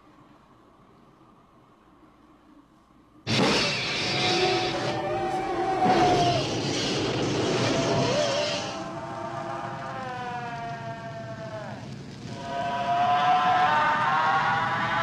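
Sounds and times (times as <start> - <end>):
flamethrower fire rushing: 3.3 - 15.0
shrill creature shriek: 3.4 - 15.0.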